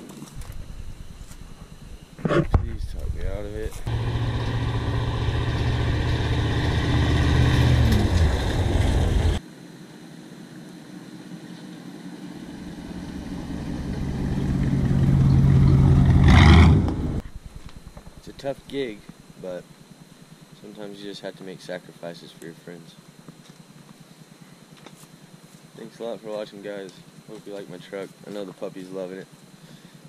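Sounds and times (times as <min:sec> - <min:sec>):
pickup truck engine driving past: 0:03.9 - 0:09.4, 0:12.5 - 0:17.2.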